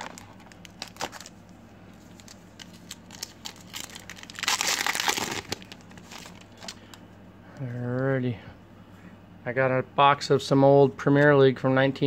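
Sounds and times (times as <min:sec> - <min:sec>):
foil wrapper tearing: 0:00.0 - 0:01.4, 0:02.1 - 0:07.0
foil wrapper rustling: 0:00.0 - 0:07.0.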